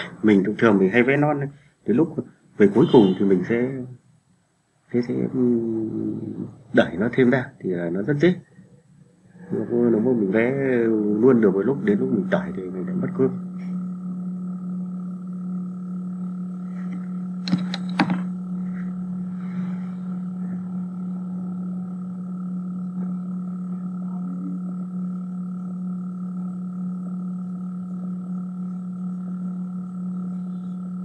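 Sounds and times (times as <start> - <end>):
low hum with overtones: 0.0 - 31.0
sharp clicks: 17.4 - 18.2.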